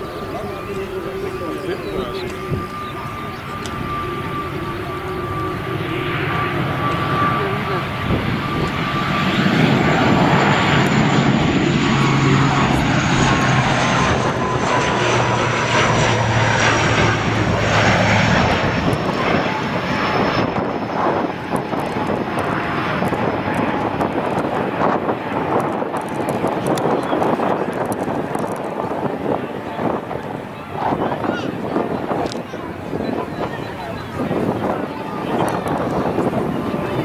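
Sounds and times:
turboprop airliner flying low: 0.0s - 37.0s.

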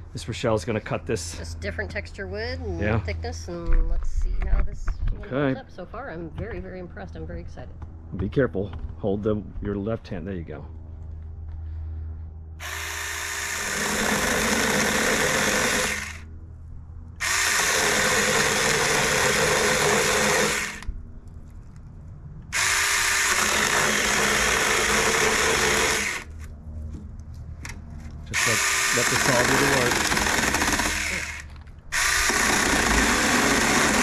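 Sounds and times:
electric chainsaw cutting wood: 12.6s - 16.3s, 17.2s - 20.9s, 22.5s - 26.5s, 28.3s - 34.0s.

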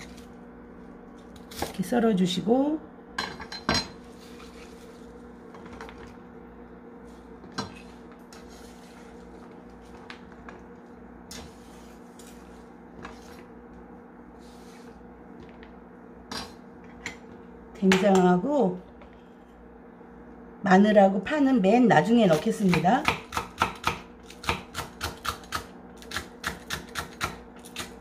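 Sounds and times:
steady low hum: 0.0s - 28.0s
knife scraping cutting board: 7.4s - 9.4s, 11.3s - 13.5s.

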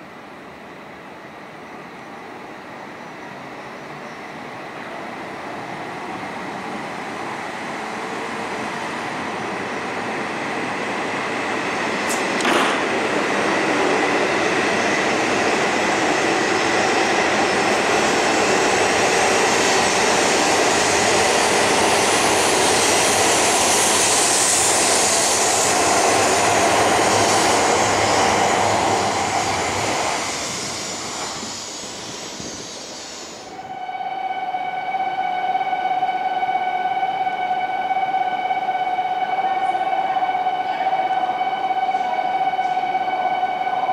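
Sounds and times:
train running noise: 0.0s - 43.9s
sharp click: 12.1s - 12.9s
steady high tone: 12.8s - 43.9s.

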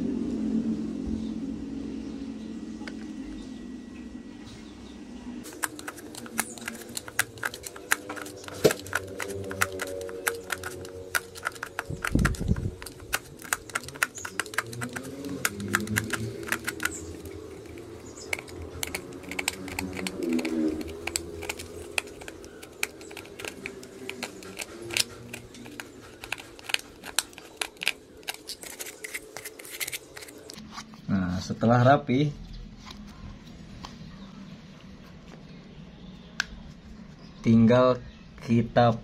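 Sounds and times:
utility knife scraping plastic cup: 5.4s - 30.6s.

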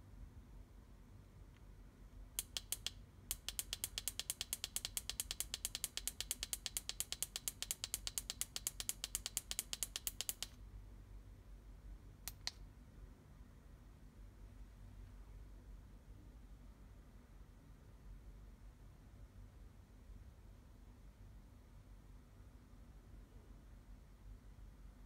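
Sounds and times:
remote control buttons clicking: 2.4s - 10.6s, 12.3s - 12.6s.

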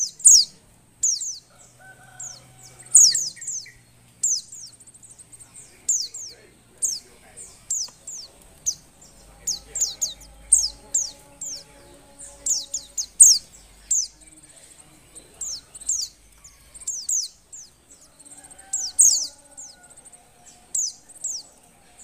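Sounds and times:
bird chirping high-pitched: 0.0s - 22.0s
faint high trill: 9.4s - 14.3s.

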